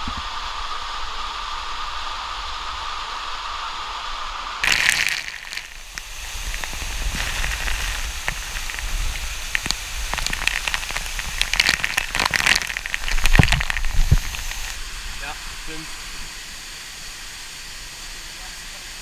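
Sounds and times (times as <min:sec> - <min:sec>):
rush of falling water: 0:00.0 - 0:19.0
water droplets hitting camera: 0:04.6 - 0:14.8.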